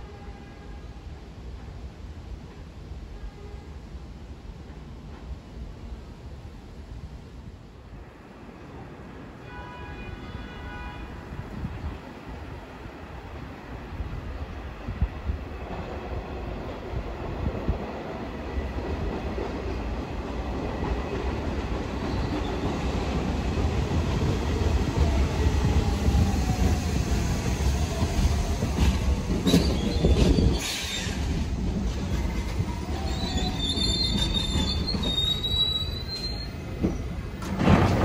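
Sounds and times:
subway train running on track: 0.0 - 38.0
wheels clacking over rail joints: 28.1 - 38.0
wheel squeal: 32.9 - 37.2.

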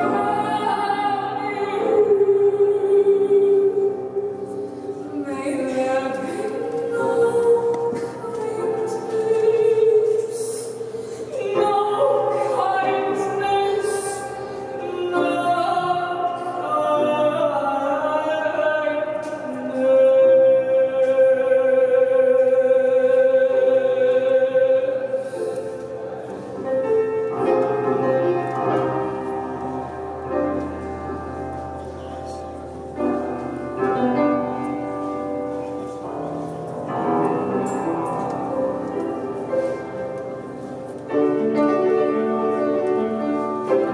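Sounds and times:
woman singing operatically: 0.0 - 4.3, 5.1 - 25.2
piano accompaniment: 0.0 - 43.9.

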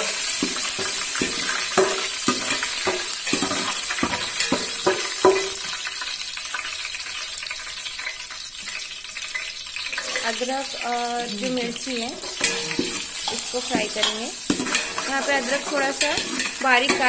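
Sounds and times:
leaves sizzling in hot oil: 0.0 - 17.0
metal skimmer scraping a pot: 9.9 - 10.4, 12.2 - 17.0.

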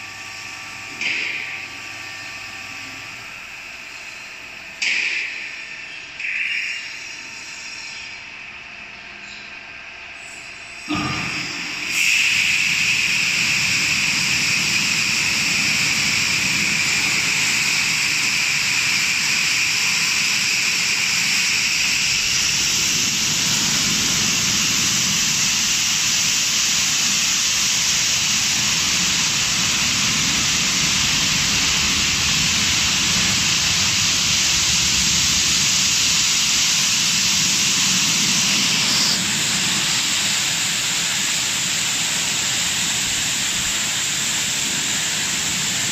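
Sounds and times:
high-pressure water spray: 10.9 - 45.9.

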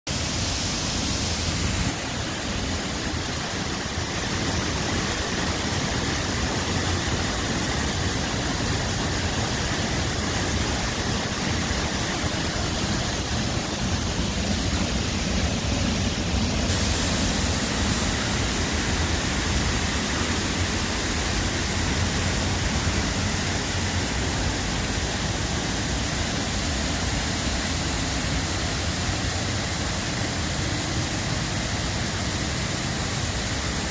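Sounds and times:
waterfall roaring: 0.1 - 33.9.

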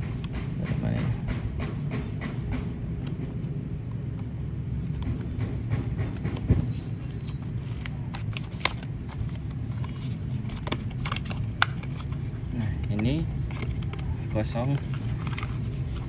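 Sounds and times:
card flaps creaking: 2.4 - 16.0
paper rustling: 4.9 - 16.0.

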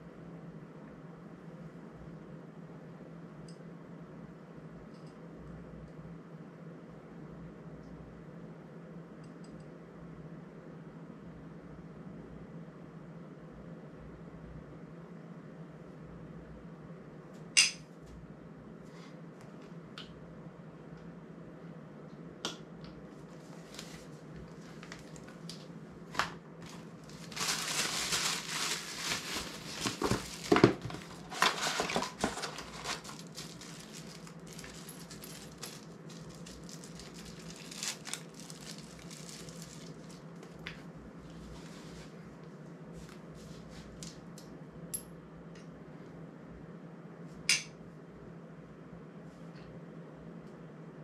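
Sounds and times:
plastic bag crinkling: 23.6 - 25.5, 26.1 - 40.6.

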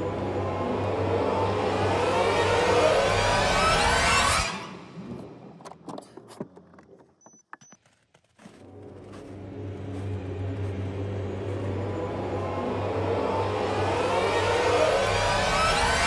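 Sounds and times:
truck engine running: 8.7 - 15.6.

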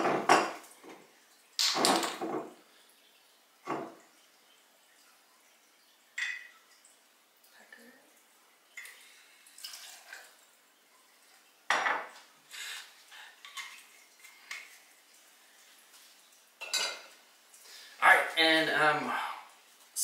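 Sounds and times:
glass and metal clinking on bar top: 16.6 - 17.1.

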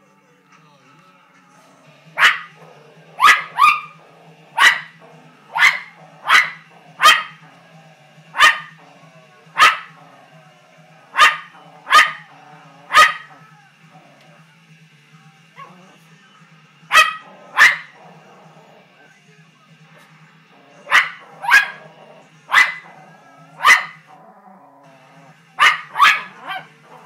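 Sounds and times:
poodle barking: 1.9 - 7.6, 8.3 - 14.4, 15.6 - 16.0, 16.9 - 19.0, 19.9 - 27.0.

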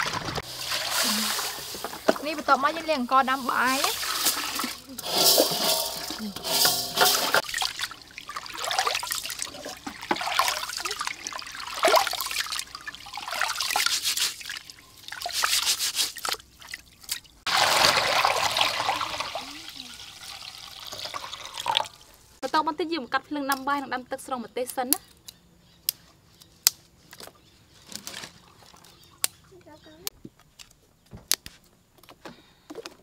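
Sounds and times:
rice splashing in water: 0.0 - 6.1, 7.0 - 16.8, 17.5 - 20.9
water pouring from pot: 0.0 - 15.7, 17.5 - 22.2.

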